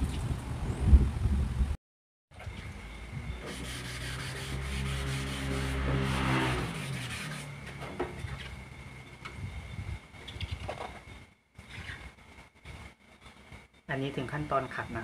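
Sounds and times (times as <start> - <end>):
sandpaper rubbing back and forth: 3.4 - 7.6.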